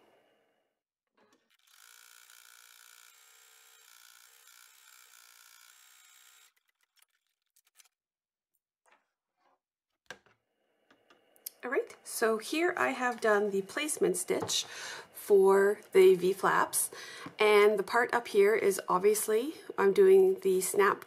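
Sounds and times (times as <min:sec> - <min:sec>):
embroidery machine whirring: 0:01.4 - 0:06.8.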